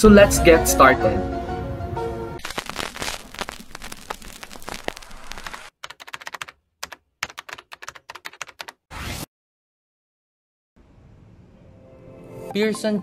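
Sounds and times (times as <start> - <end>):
burst of hiss: 2.4 - 5.7
keyboard typing clicks: 5.8 - 8.7.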